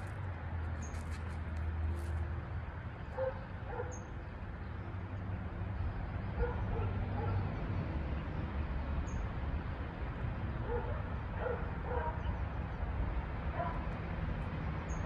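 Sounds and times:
dog barking: 3.2s - 4.0s, 6.4s - 7.4s, 10.7s - 12.3s, 13.5s - 13.8s.

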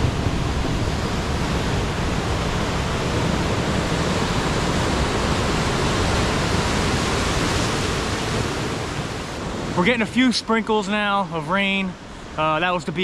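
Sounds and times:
surf on rocky shore: 0.0s - 13.0s.

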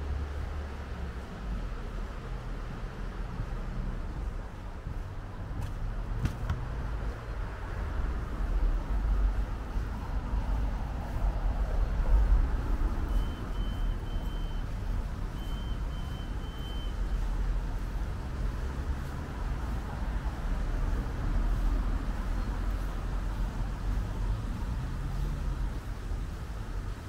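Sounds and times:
short high-pitched beeps: 13.1s - 14.6s, 15.3s - 17.0s.

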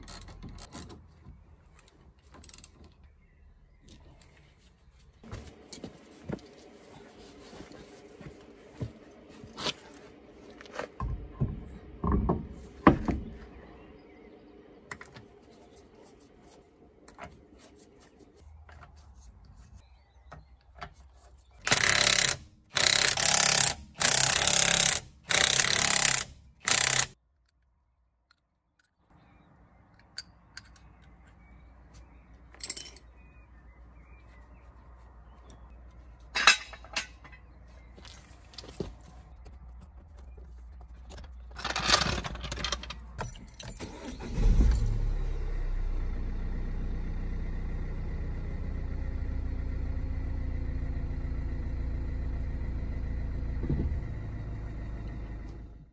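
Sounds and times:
impact wrench whirring: 21.6s - 27.2s.

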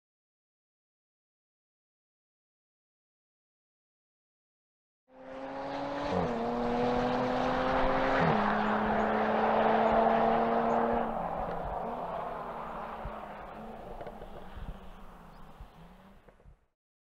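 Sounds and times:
car engine accelerating hard: 5.1s - 16.4s.

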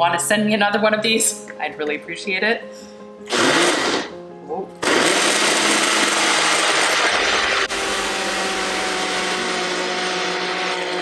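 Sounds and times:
blender motor whirring: 3.3s - 4.1s, 4.8s - 11.0s.

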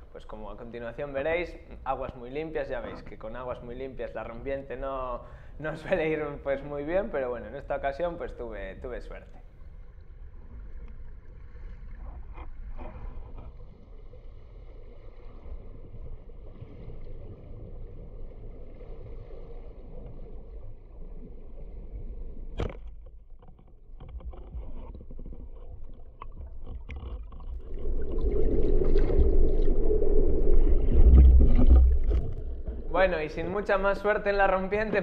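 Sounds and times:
underwater rumble of moving water: 0.0s - 35.0s
bubbles and breaking waves: 8.0s - 22.6s, 24.9s - 34.9s.

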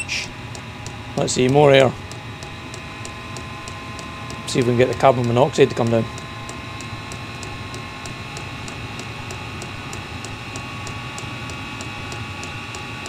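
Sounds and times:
heater blower fan humming: 0.0s - 13.0s
fuel pump clicking: 3.6s - 10.6s.

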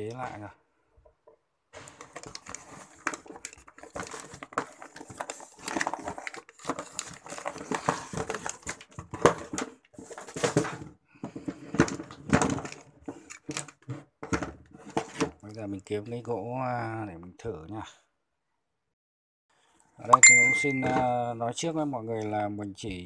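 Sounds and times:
cardboard box rustling: 2.0s - 10.8s.

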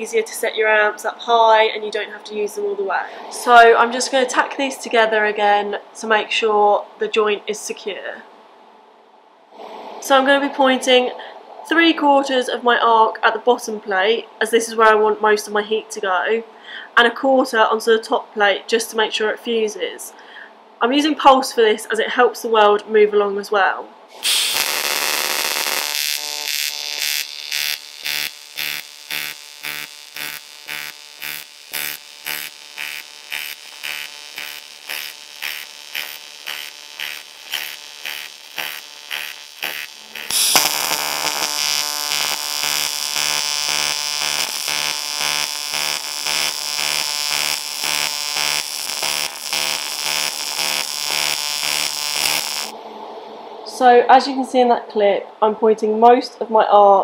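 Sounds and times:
pulsed welding arc buzzing: 24.1s - 52.7s.

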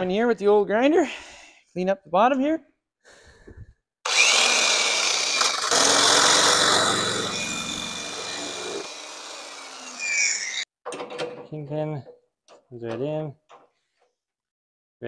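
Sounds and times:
grinder grinding metal: 4.1s - 10.6s
grinder whine: 4.1s - 10.6s.

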